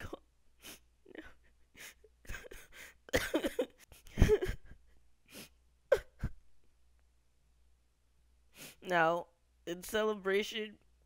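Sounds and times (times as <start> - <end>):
man sobbing: 1.1 - 6.4.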